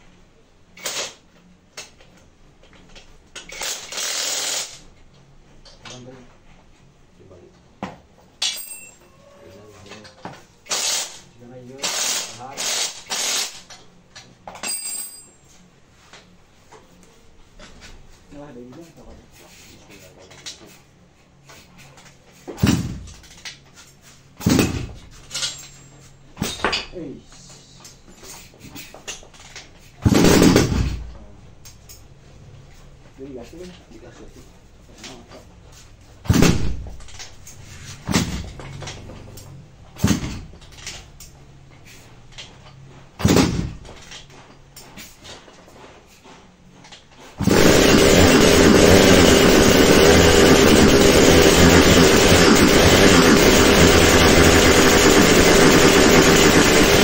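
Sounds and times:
two-stroke engine kicked over: 0:47.4 - 0:57.0.

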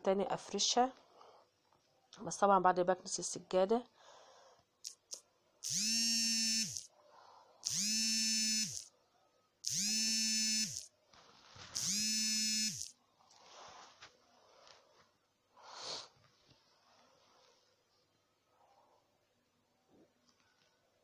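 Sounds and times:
small electric motor buzzing: 0:04.9 - 0:06.9, 0:07.6 - 0:08.9, 0:09.6 - 0:10.9, 0:11.8 - 0:12.9
rustling: 0:11.1 - 0:11.9, 0:13.3 - 0:15.2.

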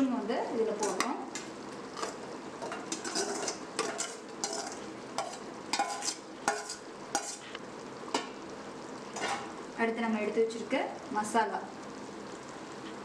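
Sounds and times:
steady sizzle from pot: 0:00.0 - 0:13.0
metal ladle scraping steel bowl: 0:02.0 - 0:07.4.

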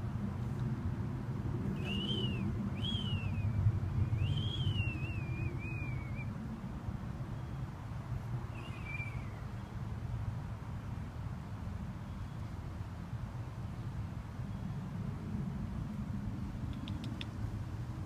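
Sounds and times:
high thin whistles: 0:01.7 - 0:06.3, 0:08.6 - 0:09.4.

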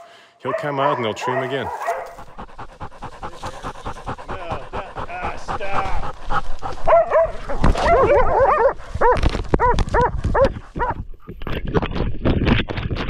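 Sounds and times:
dogs barking: 0:00.0 - 0:11.0
rustling dry leaves: 0:05.9 - 0:10.4.

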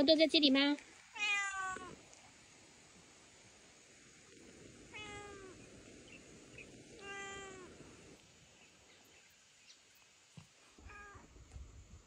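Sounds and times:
cat meowing: 0:01.2 - 0:02.0, 0:04.9 - 0:05.6, 0:07.0 - 0:07.7, 0:10.8 - 0:11.2.

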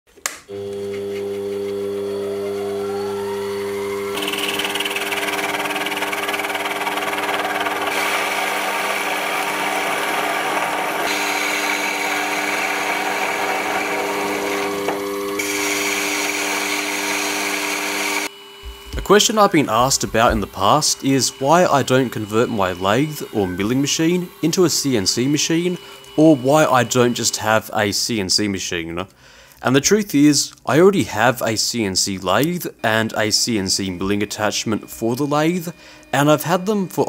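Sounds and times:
lathe motor whine: 0:00.5 - 0:28.2, 0:32.8 - 0:37.0
cutting tool hissing on metal: 0:01.0 - 0:27.7.

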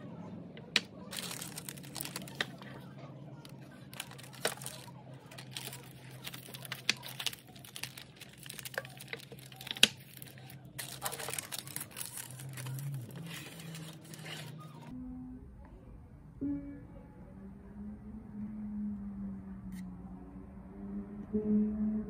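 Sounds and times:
low steady hum: 0:00.0 - 0:22.0
paper liners rustling: 0:00.7 - 0:14.9.

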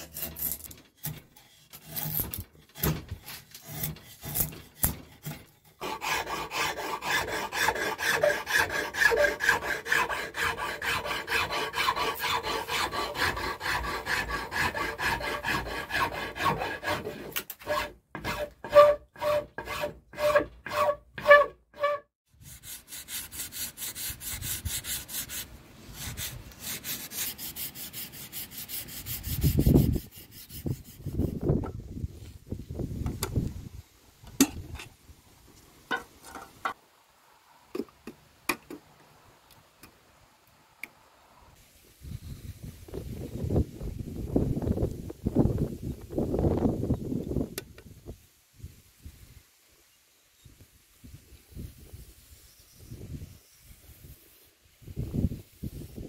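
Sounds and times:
rasp filing wood: 0:00.0 - 0:31.5
sandpaper rubbing on wood: 0:05.8 - 0:31.5.

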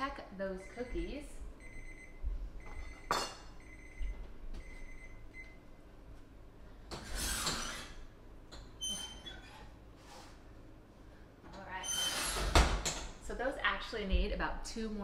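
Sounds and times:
oven timer beeping: 0:00.5 - 0:05.6.

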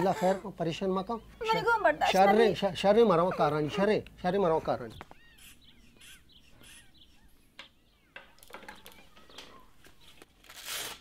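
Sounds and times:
faint bird chirps: 0:04.9 - 0:10.3.

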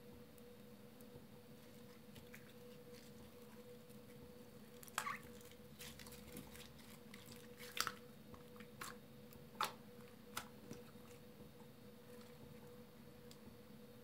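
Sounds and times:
faint steady hum: 0:00.0 - 0:14.0
slime squelching and popping: 0:04.8 - 0:11.2.

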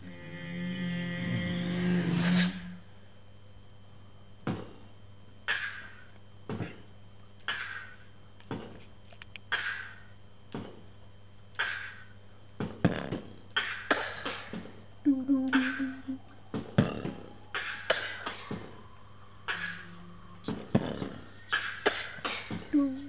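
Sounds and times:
vocal beatboxing: 0:15.1 - 0:16.2, 0:19.5 - 0:23.0.

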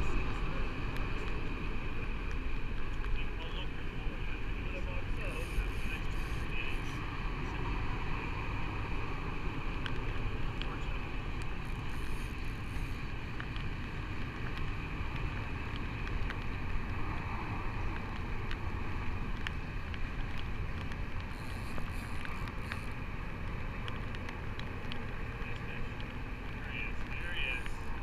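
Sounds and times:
water around a boat: 0:00.0 - 0:28.0
wind: 0:00.0 - 0:28.0
faint sharp clicks: 0:19.3 - 0:27.8.

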